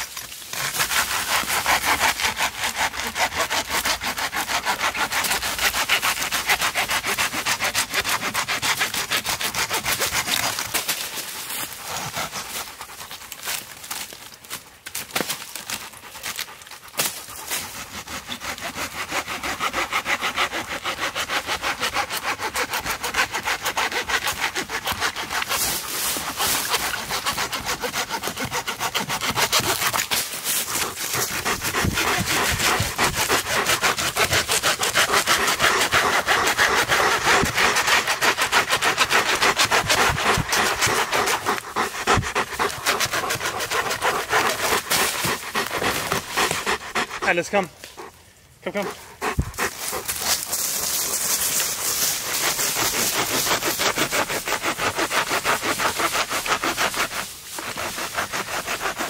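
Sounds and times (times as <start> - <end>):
hand saw cutting log: 0.0 - 59.0.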